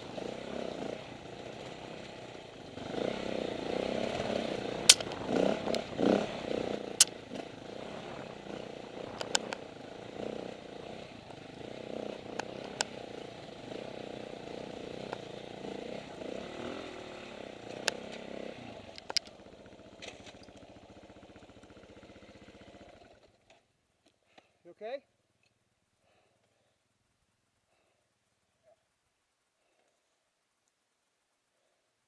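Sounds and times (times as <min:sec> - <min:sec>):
dirt bike engine: 0:00.0 - 0:24.7.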